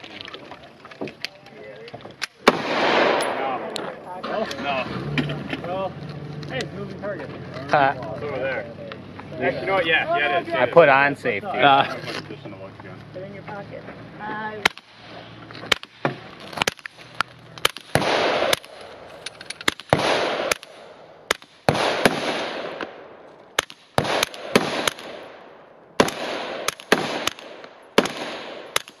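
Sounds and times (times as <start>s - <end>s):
suppressed pistol shots: 2.3s - 3.8s, 17.6s - 18.9s, 19.6s - 29.0s
echoing rush after shots: 2.4s - 5.2s, 17.6s - 19.1s, 19.8s - 29.0s.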